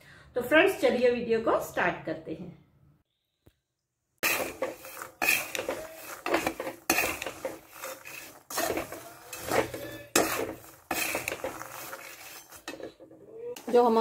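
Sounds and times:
spatula scraping peanuts in pan: 0:04.2 - 0:14.0.

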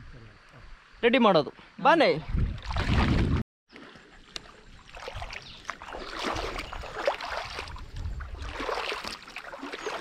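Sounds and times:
footsteps splashing through water: 0:02.6 - 0:10.0.

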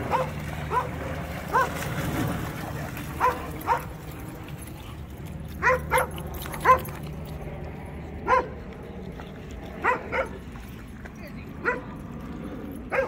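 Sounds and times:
dog barking: 0:05.6 - 0:06.9, 0:08.3 - 0:08.5, 0:09.8 - 0:10.3.

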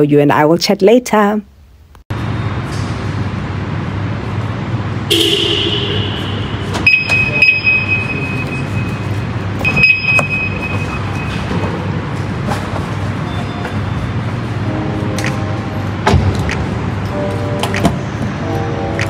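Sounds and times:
high beeps: 0:06.9 - 0:11.6.

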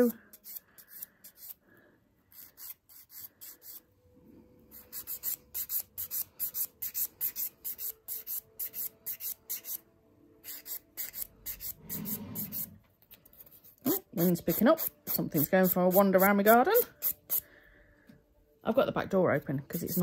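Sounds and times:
nail file rasping fingernail: 0:00.3 - 0:01.6, 0:02.3 - 0:03.8, 0:04.7 - 0:09.8, 0:10.4 - 0:12.7.

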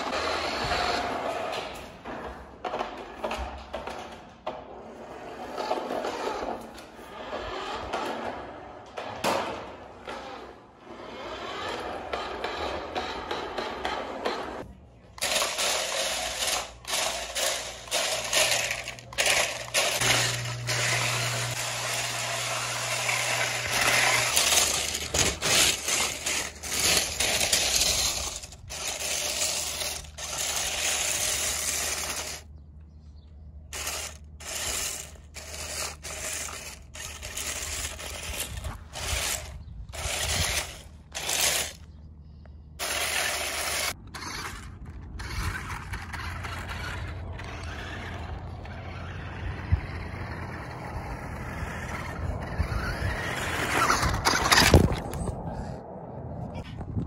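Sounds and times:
toy car wheels rattling gravel: 0:15.2 - 0:32.5, 0:33.7 - 0:41.9, 0:42.8 - 0:55.3.

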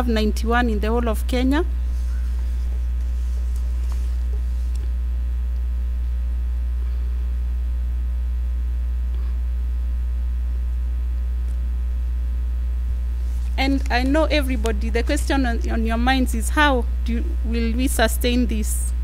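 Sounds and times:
electrical mains hum: 0:00.0 - 0:19.0
paper rustling: 0:01.9 - 0:04.8.

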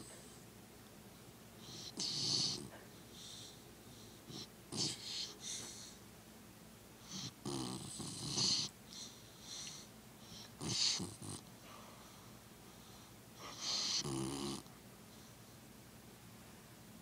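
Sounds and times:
dog snoring loudly: 0:01.6 - 0:02.7, 0:04.3 - 0:05.4, 0:07.1 - 0:08.7, 0:10.6 - 0:11.5, 0:13.4 - 0:14.7
soft snoring breaths: 0:01.6 - 0:06.0, 0:07.0 - 0:15.4.

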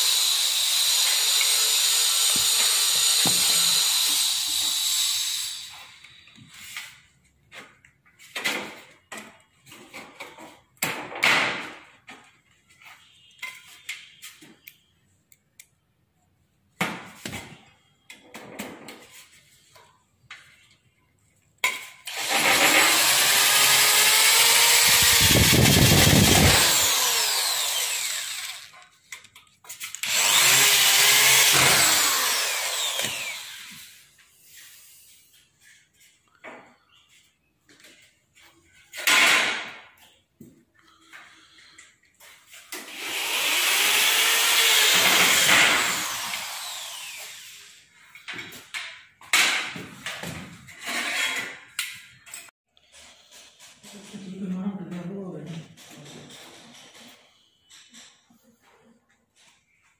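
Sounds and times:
electric drill running: 0:00.0 - 0:06.2, 0:22.1 - 0:28.9, 0:30.0 - 0:34.1, 0:42.8 - 0:47.8.

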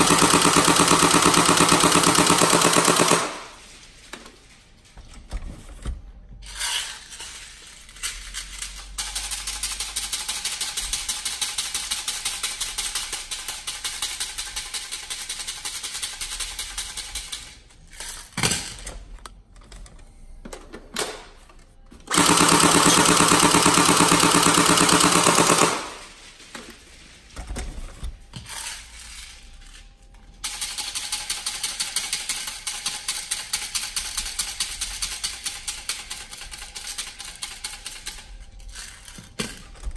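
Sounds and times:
airsoft gun rapid rattling: 0:00.0 - 0:03.5, 0:22.1 - 0:26.1, 0:30.5 - 0:38.2.

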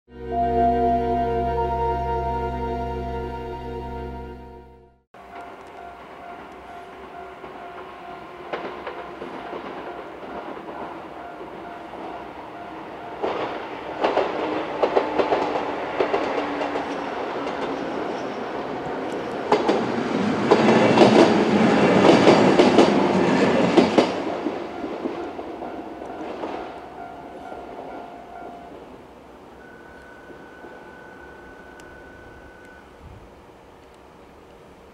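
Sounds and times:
crossing warning bell: 0:00.1 - 0:33.0
train wheels clattering over rails: 0:05.3 - 0:26.8.

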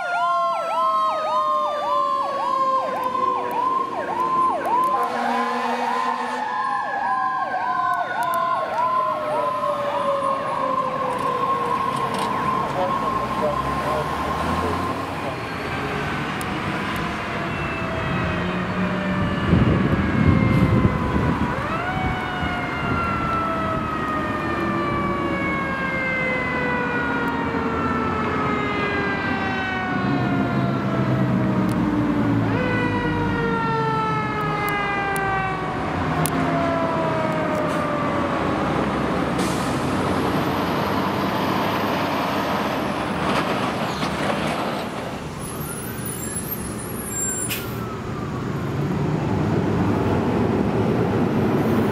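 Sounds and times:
fire engine siren: 0:00.0 - 0:51.9
truck engine rumble: 0:00.0 - 0:51.9.

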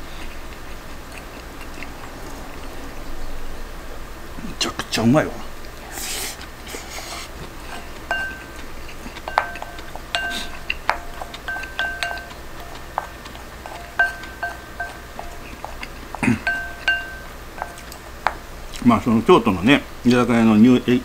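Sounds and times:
spoon tapping ceramic bowl: 0:07.7 - 0:18.5.

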